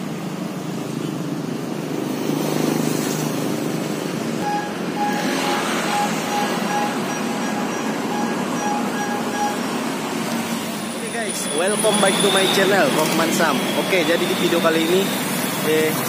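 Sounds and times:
street traffic: 0.0s - 16.0s
repeating electronic beep: 4.4s - 16.0s.

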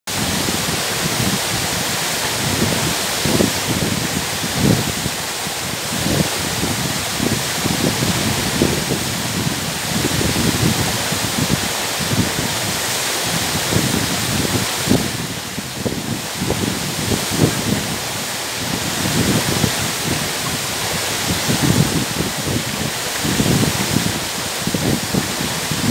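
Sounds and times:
waterfall rushing onto boulders: 0.1s - 25.9s.

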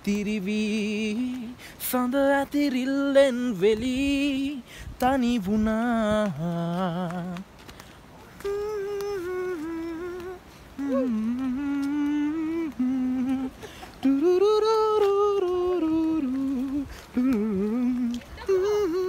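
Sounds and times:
man humming: 8.4s - 19.0s.

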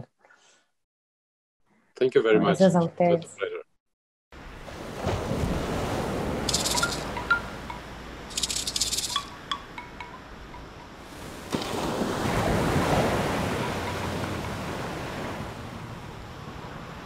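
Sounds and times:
ocean waves rushing: 4.4s - 17.0s
faint ticks: 6.5s - 11.0s.

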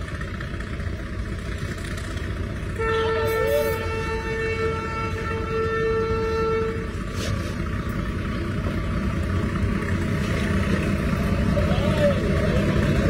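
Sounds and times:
low rumble of trains: 0.0s - 13.0s
train horn: 2.7s - 7.5s.

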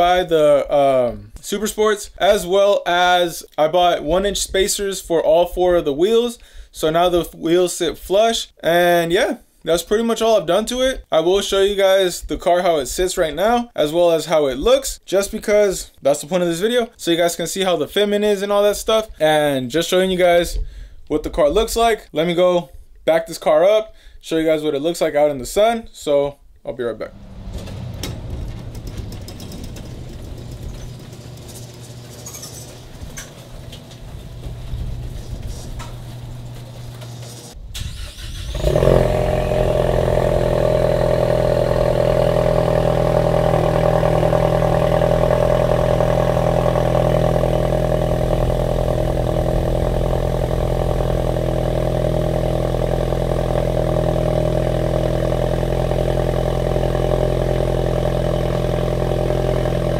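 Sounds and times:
car engine starting and idling: 27.0s - 59.9s
garage door opener humming: 27.2s - 37.6s.

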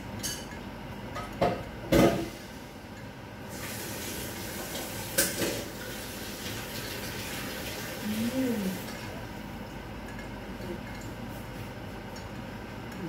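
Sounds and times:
dishes clinking: 0.2s - 0.6s
tap water running: 3.5s - 9.8s.

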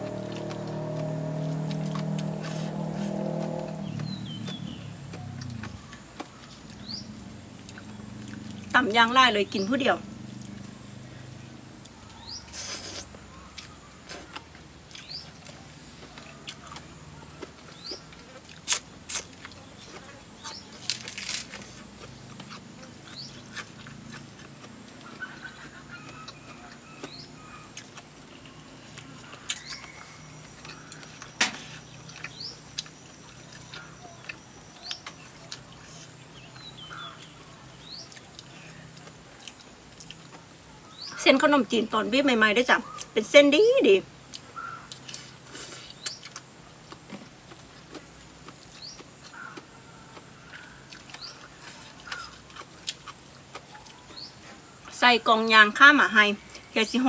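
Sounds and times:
chewing and crunching: 0.0s - 10.8s, 11.4s - 41.2s, 44.1s - 55.0s
bird chirps: 0.1s - 8.3s, 25.0s - 39.0s.

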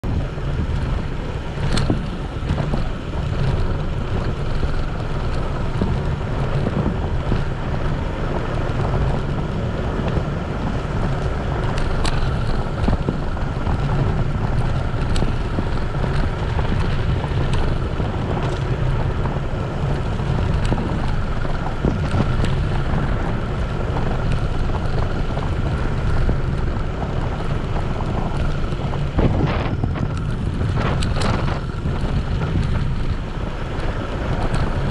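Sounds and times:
tyres rumbling on gravel: 0.0s - 34.9s
wind buffeting microphone: 0.0s - 34.9s
stones ticking: 23.9s - 34.9s.

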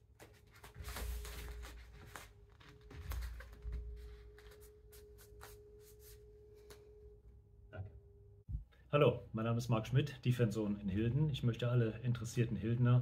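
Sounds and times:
feet shuffling on foam mats: 0.0s - 6.8s
faint steady hum: 0.2s - 13.0s.

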